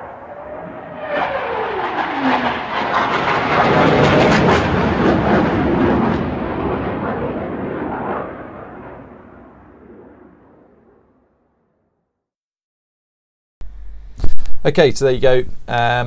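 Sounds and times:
fast vehicle passing by: 0.0s - 5.5s.

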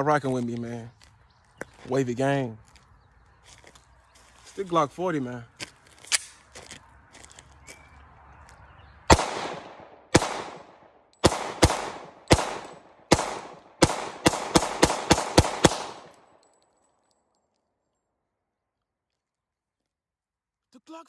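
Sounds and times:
pistol gunshots with echo: 9.1s - 16.4s.

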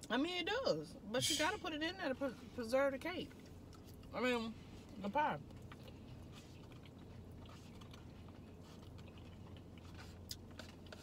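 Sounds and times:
steady low hum: 0.0s - 11.0s
close-up chewing: 4.8s - 11.0s.

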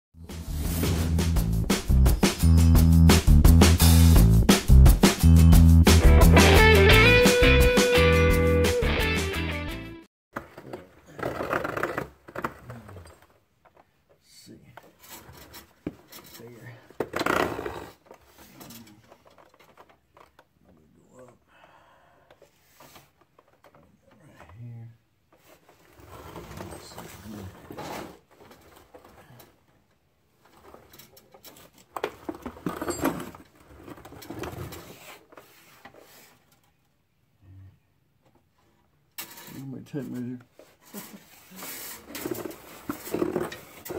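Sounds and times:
guitar music: 1.9s - 10.1s
scraping and rustling handling: 10.4s - 21.0s, 25.2s - 37.0s, 38.2s - 43.9s.

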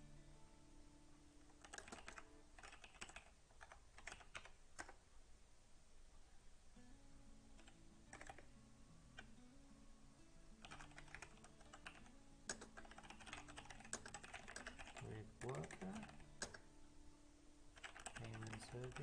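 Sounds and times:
faint keyboard typing: 1.4s - 5.0s, 7.5s - 9.4s, 10.6s - 16.7s, 17.7s - 19.0s.

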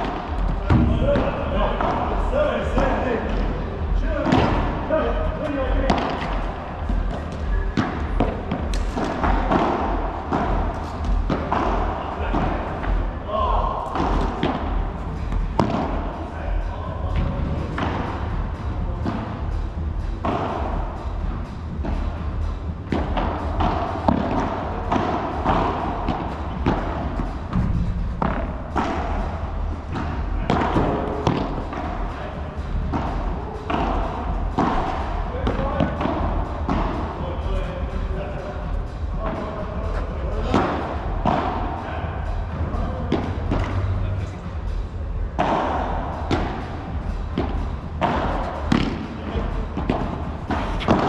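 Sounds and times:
ball bouncing off court and walls: 0.0s - 3.5s, 5.9s - 13.0s, 13.8s - 16.1s, 22.8s - 32.0s, 45.4s - 51.0s
steady low hum: 0.0s - 51.0s
steady low rumble: 0.0s - 51.0s
padel ball struck by rackets: 7.8s - 10.7s, 15.6s - 15.9s, 47.4s - 49.0s.

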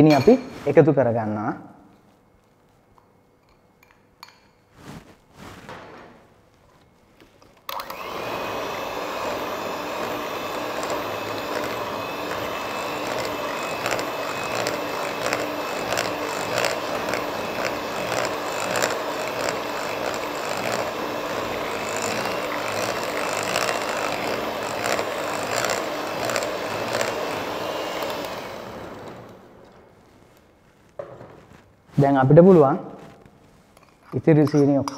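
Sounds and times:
electric hand mixer running: 7.7s - 29.8s.

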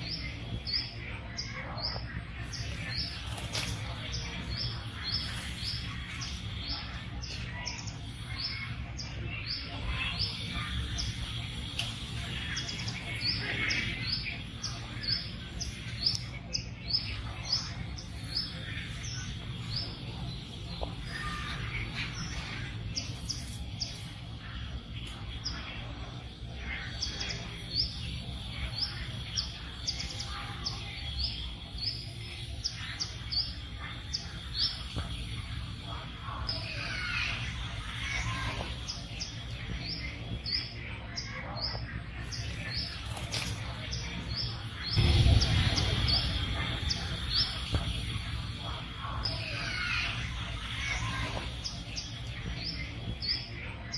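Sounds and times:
small birds chirping: 0.0s - 53.9s
low rumble: 44.9s - 48.7s.

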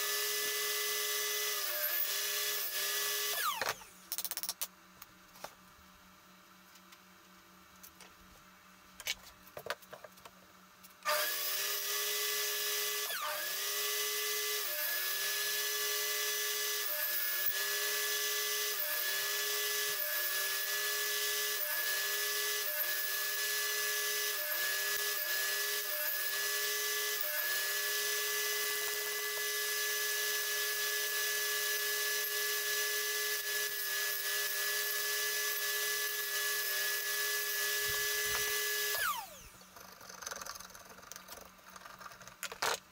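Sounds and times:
table saw cutting wood: 0.0s - 3.9s, 11.0s - 40.5s.

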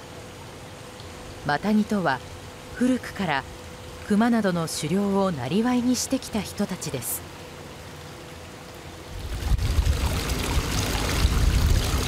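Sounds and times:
water pouring into bath: 9.2s - 12.0s.

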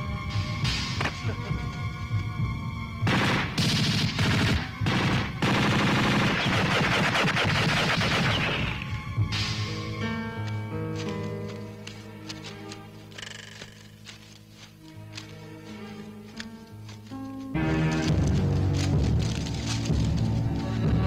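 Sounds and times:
film score music: 0.0s - 21.0s
automatic gunfire: 3.1s - 8.8s.

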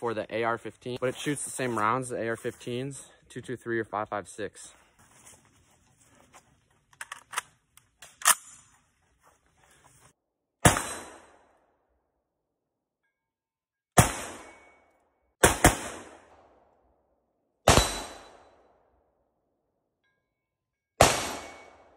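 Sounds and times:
rifle metallic clicks: 6.9s - 8.7s
rifle shots echoing: 15.4s - 16.5s, 17.7s - 18.6s, 21.0s - 21.9s.

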